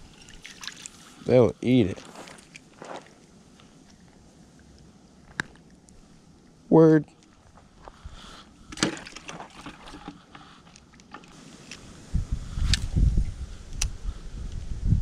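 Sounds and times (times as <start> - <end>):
low rumbling on microphone: 12.0 - 15.0.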